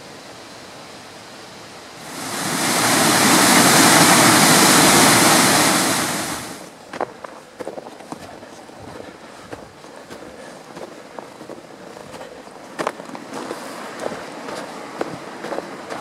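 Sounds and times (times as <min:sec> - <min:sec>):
water rushing in waterfall: 0:00.0 - 0:06.8, 0:12.6 - 0:16.0
faint steady hiss: 0:00.0 - 0:16.0.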